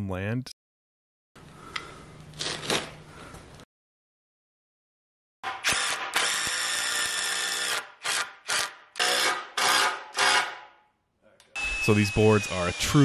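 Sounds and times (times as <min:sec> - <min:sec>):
impact driver bursts: 0:05.5 - 0:10.6
drill boring into wood: 0:05.6 - 0:10.5, 0:11.6 - 0:13.0.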